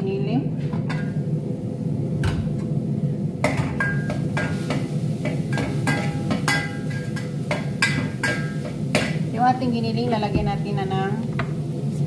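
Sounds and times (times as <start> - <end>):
metal spoon clinking in pot: 5.5 - 9.1.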